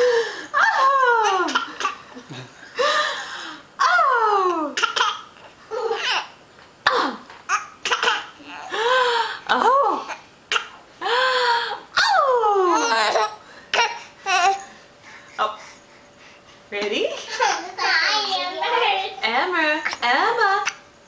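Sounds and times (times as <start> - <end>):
baby laughing: 17.3 - 18.0.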